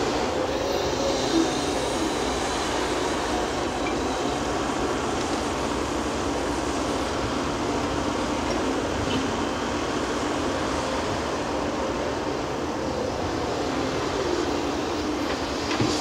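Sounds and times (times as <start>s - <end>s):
excavator engine and hydraulics: 0.0s - 16.0s.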